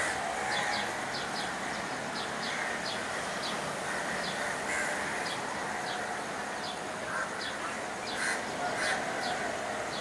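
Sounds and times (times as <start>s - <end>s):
background noise: 0.0s - 10.0s
crows cawing: 2.5s - 6.2s, 7.0s - 9.6s.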